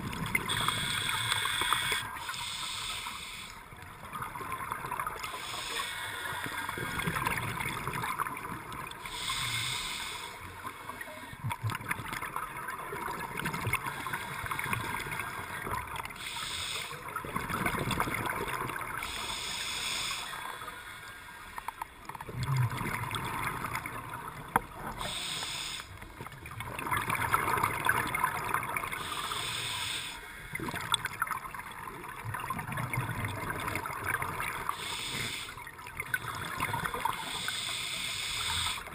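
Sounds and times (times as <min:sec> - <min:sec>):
regulator inhale hiss: 0:00.5 - 0:03.7, 0:05.2 - 0:07.2, 0:09.0 - 0:10.6, 0:16.2 - 0:17.0, 0:19.0 - 0:21.4, 0:24.9 - 0:26.0, 0:28.9 - 0:30.5, 0:34.6 - 0:35.6, 0:37.1 - 0:38.9.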